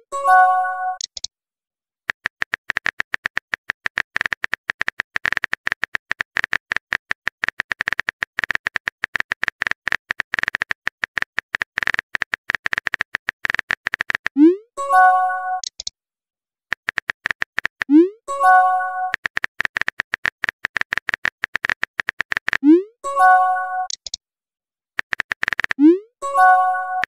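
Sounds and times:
phone keyboard typing clicks: 1.0s - 1.3s, 2.1s - 14.4s, 15.6s - 15.9s, 16.7s - 17.9s, 18.6s - 22.7s, 23.8s - 24.2s, 25.0s - 25.8s.

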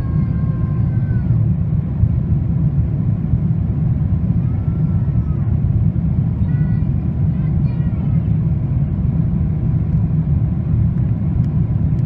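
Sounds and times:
airliner cabin engine rumble: 0.0s - 12.0s.

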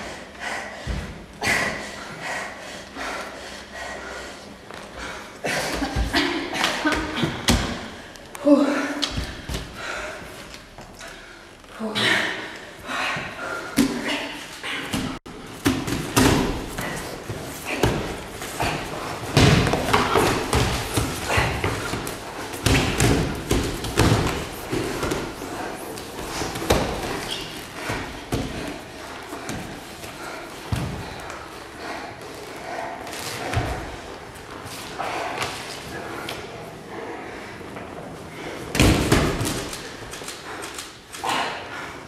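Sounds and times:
bodies thudding on gym mats: 14.9s - 30.0s, 38.7s - 40.0s.

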